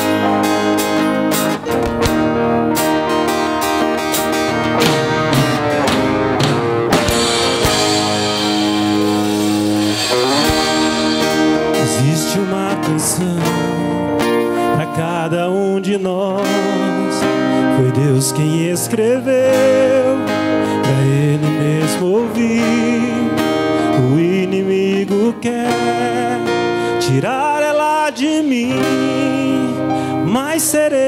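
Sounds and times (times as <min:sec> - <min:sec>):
sustained keyboard chords: 0:00.0 - 0:30.5
acoustic guitar strumming: 0:00.0 - 0:31.0
man singing: 0:11.6 - 0:31.0.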